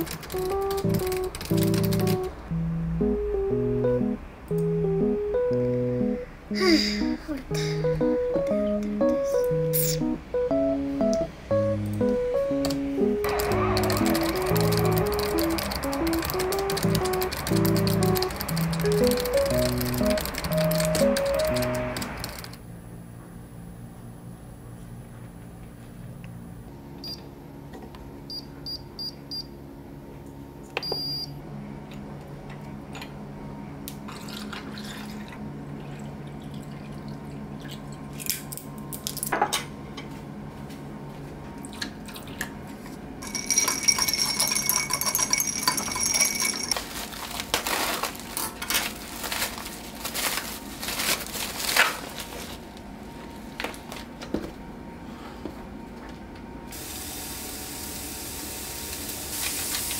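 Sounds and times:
low steady hum: 0:00.0 - 0:56.7
touch panel beeps: 0:30.8 - 0:31.3
metal stirrer clinking ice and glass: 0:43.2 - 0:47.1.

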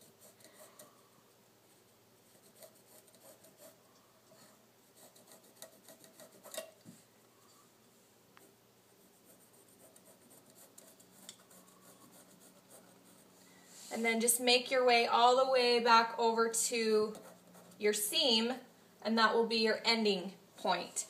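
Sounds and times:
pencil scratching on fabric: 0:00.0 - 0:01.0, 0:02.2 - 0:06.8, 0:09.0 - 0:14.0, 0:17.1 - 0:17.9.

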